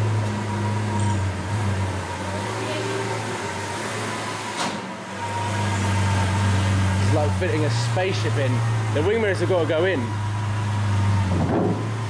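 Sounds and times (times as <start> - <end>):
car engine idling: 4.9 - 12.0.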